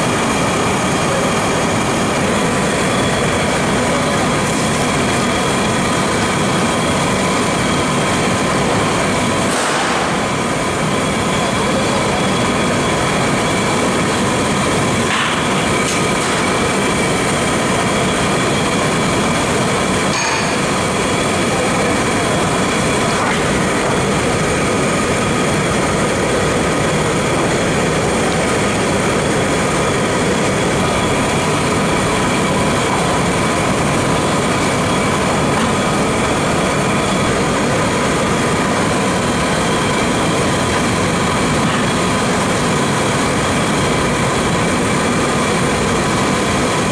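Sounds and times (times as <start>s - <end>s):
gas burners hissing: 0.0s - 46.9s.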